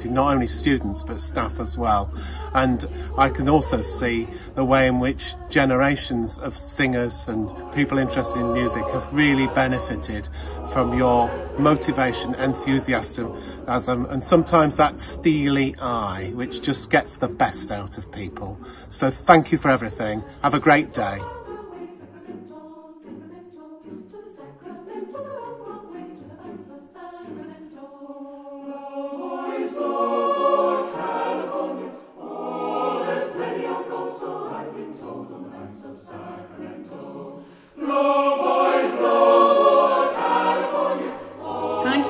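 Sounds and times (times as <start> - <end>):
choir singing: 0.0 - 42.0
singers breathing: 2.0 - 3.2, 4.2 - 4.6, 10.2 - 10.7, 13.2 - 13.8, 18.6 - 19.0, 37.4 - 37.8.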